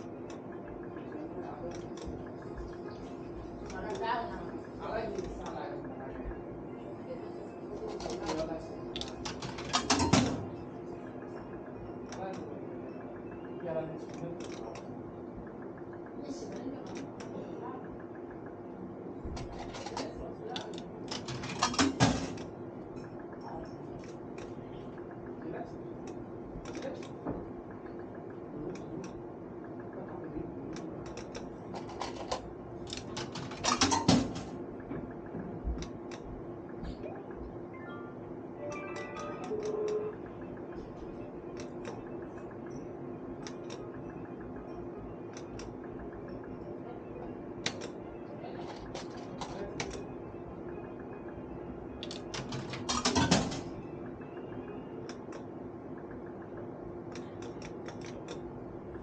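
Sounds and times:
faint machine tones: 0:00.0 - 0:59.0
steady low hum: 0:00.0 - 0:59.0
slot machine clicks and knocks: 0:08.3 - 0:10.6, 0:21.0 - 0:22.6, 0:31.8 - 0:35.7, 0:52.1 - 0:53.8
slot machine stepped beeps: 0:37.1 - 0:45.0.

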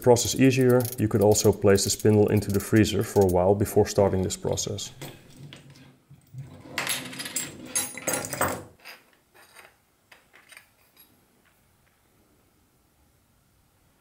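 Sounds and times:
metal parts clicking: 0:00.3 - 0:03.4.

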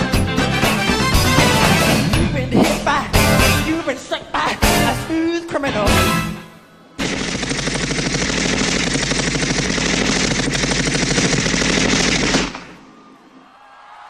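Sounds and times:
machine-gun fire sound effect: 0:07.0 - 0:12.9.

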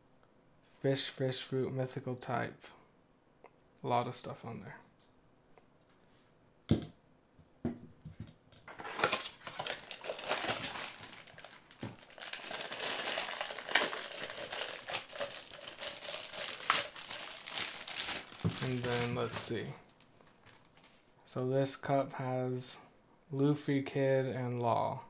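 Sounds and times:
packaging crinkling and rustling: 0:08.6 - 0:21.1.

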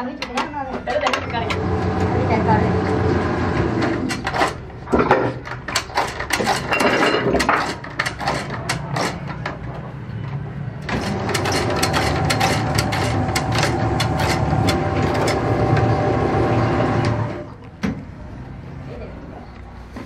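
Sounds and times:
lever shear clacking: 0:03.9 - 0:09.7, 0:10.8 - 0:15.9
steady machine drone: 0:08.6 - 0:17.5.

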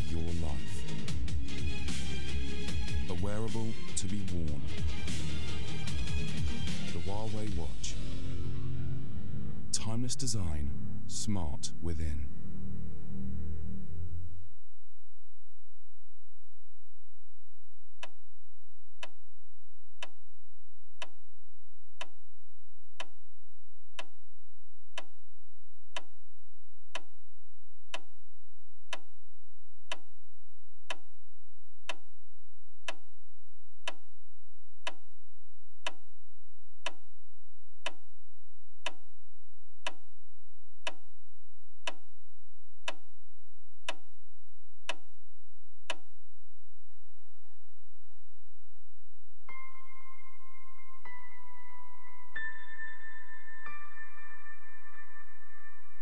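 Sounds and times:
low steady hum: 0:07.5 - 0:14.5
clock ticking: 0:22.0 - 0:22.2, 0:24.0 - 0:24.2, 0:25.9 - 0:26.1, 0:26.9 - 0:27.1, 0:27.9 - 0:28.2, 0:28.9 - 0:29.2, 0:29.9 - 0:30.2, 0:30.9 - 0:31.2, 0:31.8 - 0:32.1, 0:32.8 - 0:33.1, 0:33.8 - 0:34.1, 0:34.8 - 0:35.1, 0:35.8 - 0:36.1, 0:36.8 - 0:37.1, 0:37.8 - 0:38.1, 0:38.8 - 0:39.1, 0:39.8 - 0:40.1, 0:40.8 - 0:41.1, 0:41.8 - 0:42.1, 0:42.9 - 0:43.1, 0:43.8 - 0:44.2, 0:44.8 - 0:45.1, 0:45.9 - 0:46.1.

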